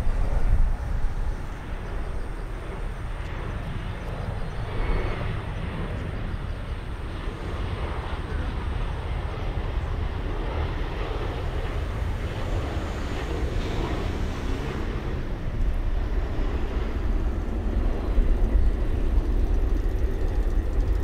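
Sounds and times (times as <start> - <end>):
jet engine rumble: 0.0 - 21.0.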